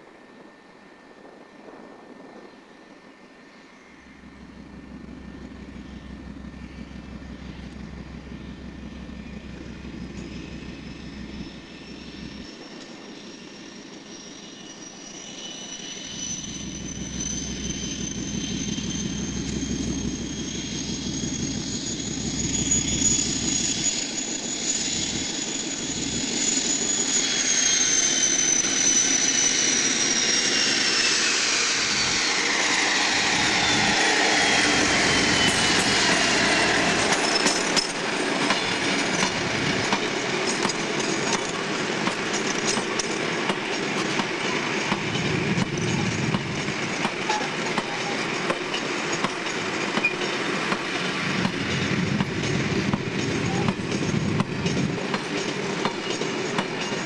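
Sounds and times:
diesel locomotive engine rumbling: 0.0s - 57.0s
turbocharger whistle: 14.1s - 37.9s.

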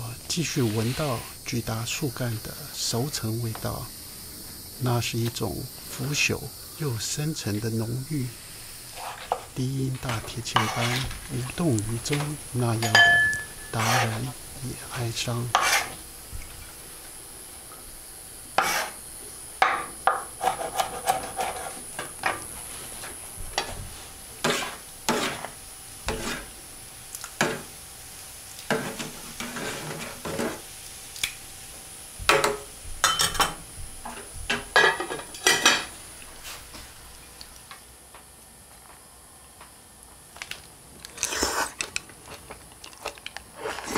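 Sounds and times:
steady high hiss: 0.0s - 43.9s
utensils clinking against dishes: 12.0s - 14.3s, 32.3s - 35.9s.

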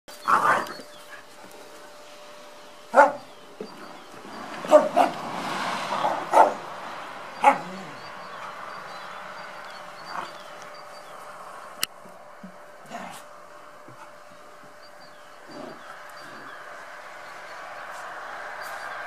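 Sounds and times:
dogs barking: 2.9s - 3.4s, 4.5s - 10.5s.

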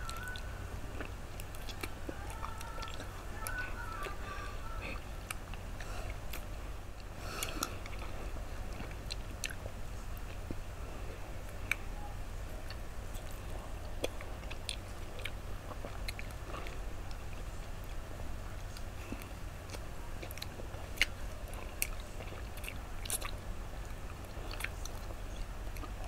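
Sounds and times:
steady low hum: 0.0s - 26.0s
crunching popsicles: 18.7s - 26.0s.

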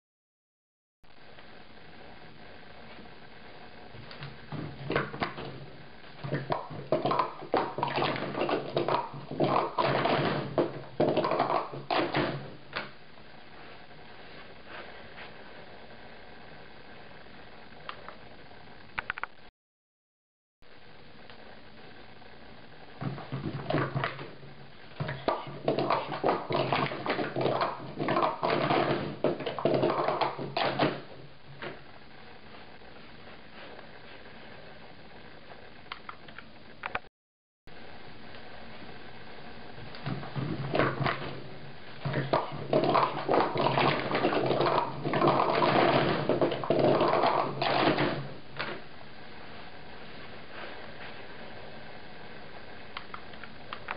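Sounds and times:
plastic cups clattering: 6.2s - 12.5s, 25.0s - 31.2s, 40.0s - 48.8s.

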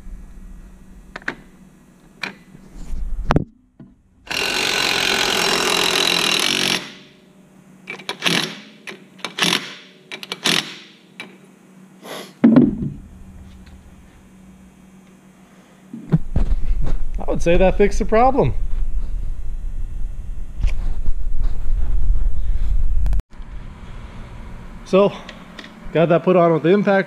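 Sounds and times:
impact wrench hammering: 4.3s - 7.2s, 7.9s - 11.4s
heavy thump: 12.4s - 13.1s.

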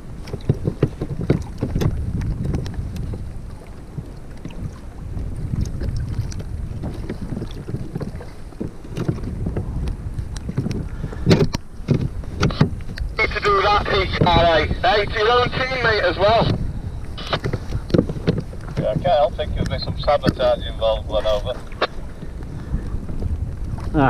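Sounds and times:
wind rumbling on microphone: 0.0s - 24.0s
clicks and knocks on plastic hull: 0.2s - 3.2s, 5.6s - 12.8s.

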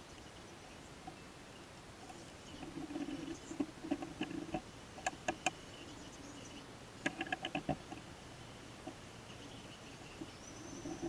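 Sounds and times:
small metal clicks: 7.0s - 8.0s.

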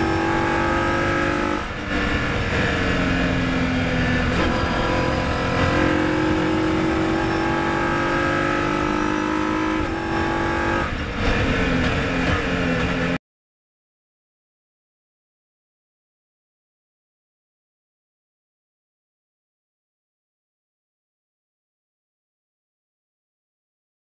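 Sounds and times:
race car engine at high revs: 0.0s - 13.2s.

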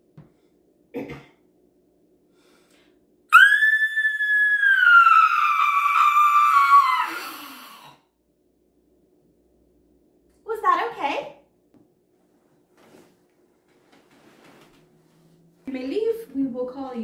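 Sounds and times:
woman screeching roar: 3.3s - 8.0s.

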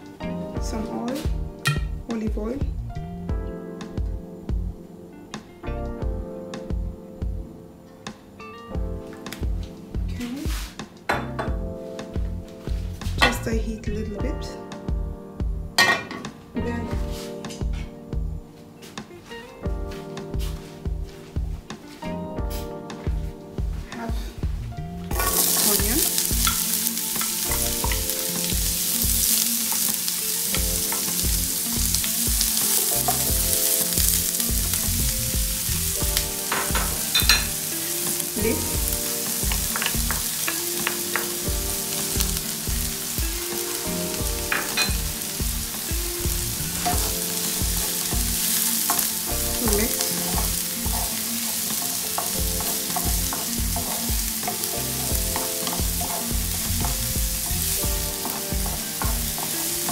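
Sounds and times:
onion sizzling in oil: 25.1s - 59.9s
wooden spatula scraping and stirring: 25.1s - 59.9s.

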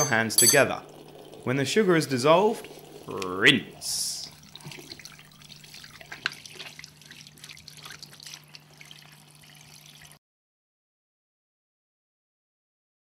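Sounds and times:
faint steady hum: 0.0s - 10.1s
tap water running into sink: 0.0s - 10.2s.

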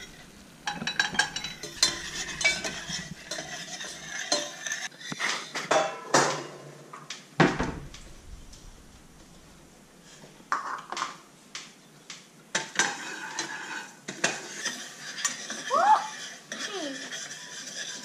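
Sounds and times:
metal spoon clinking on saucepan: 0.0s - 4.9s.

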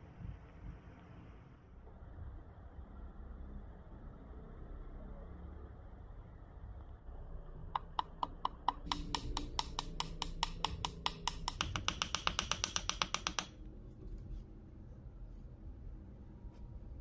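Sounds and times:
hammer knocking on metal: 7.8s - 13.5s.

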